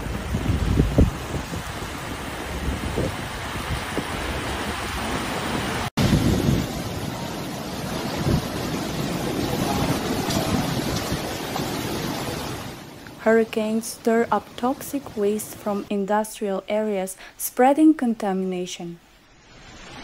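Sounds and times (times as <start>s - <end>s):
wind blowing across microphone: 0.0s - 12.9s
rushing water: 0.0s - 16.0s, 19.0s - 20.0s.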